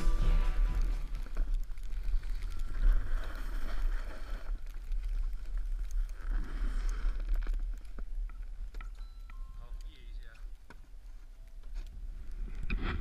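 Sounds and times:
snowboard scraping over snow: 0:00.0 - 0:07.4
wind rumbling on microphone: 0:00.0 - 0:13.0.

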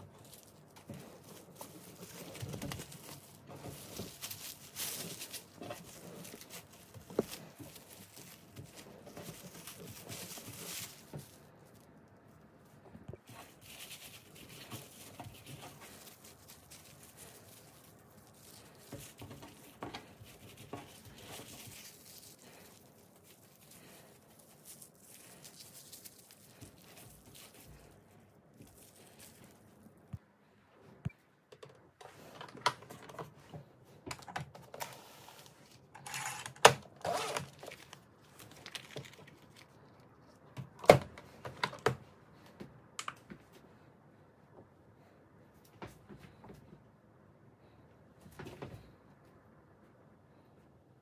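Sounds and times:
cling film crinkling: 0:00.0 - 0:30.0, 0:34.6 - 0:40.9
plastic rustling: 0:00.0 - 0:30.2, 0:32.0 - 0:42.0.

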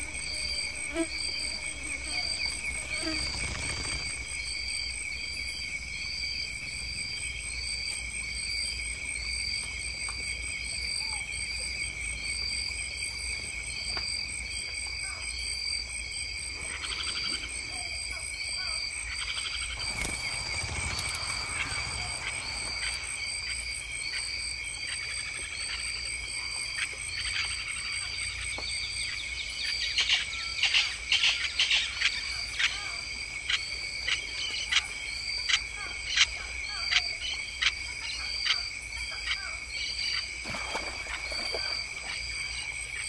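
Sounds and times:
short rising insect chirp: 0:00.0 - 0:05.5, 0:19.4 - 0:24.5
insects trilling: 0:00.0 - 0:43.0.

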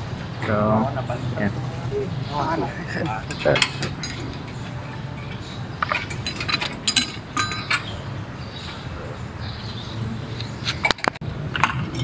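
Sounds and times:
metal brackets and tools clinking: 0:02.9 - 0:08.8, 0:10.7 - 0:12.0.

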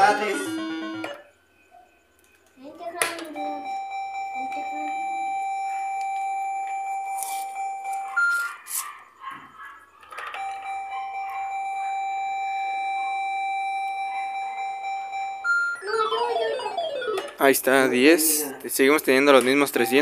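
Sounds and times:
slot machine high beep: 0:10.4 - 0:18.0.

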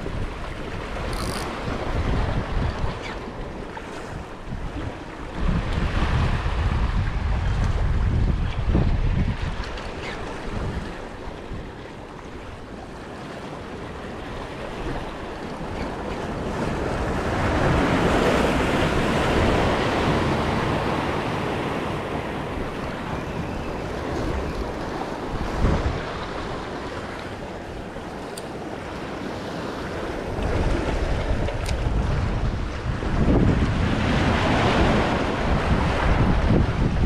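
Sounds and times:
wind on microphone: 0:00.0 - 0:13.0, 0:14.0 - 0:37.0
waves washing against rocks: 0:12.6 - 0:37.0.

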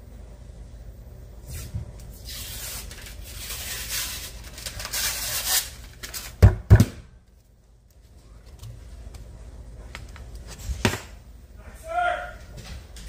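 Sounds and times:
paper wrapper tearing: 0:02.2 - 0:06.4.

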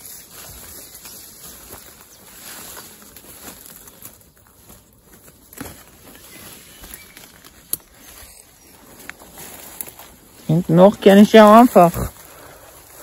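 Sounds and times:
quiet footsteps: 0:00.0 - 0:13.0
rustling through undergrowth: 0:00.0 - 0:13.0.

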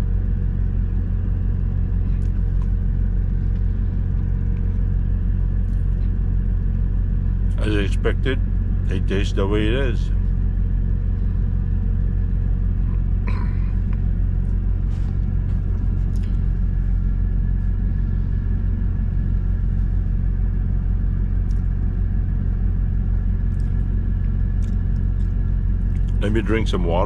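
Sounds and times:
diesel engine idling: 0:00.0 - 0:27.0.

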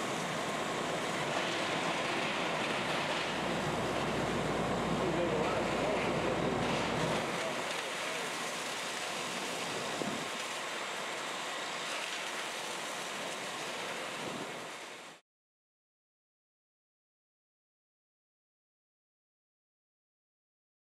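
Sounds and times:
fire hose water streams rushing: 0:00.0 - 0:15.2
wind on microphone: 0:09.8 - 0:10.3.

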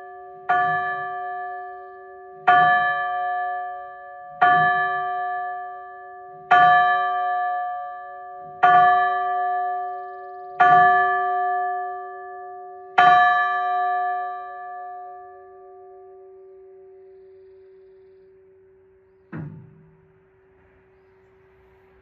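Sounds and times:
church bell tolling: 0:00.0 - 0:17.1.

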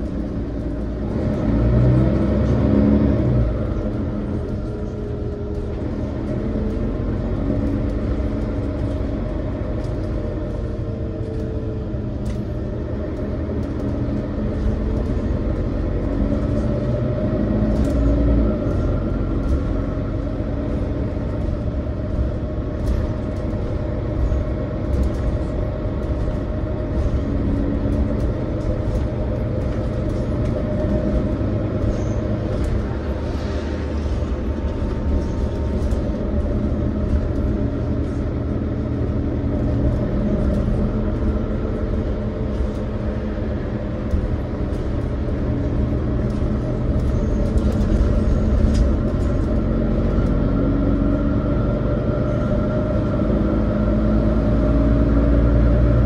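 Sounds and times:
bus engine and road rumble: 0:00.0 - 0:56.0.

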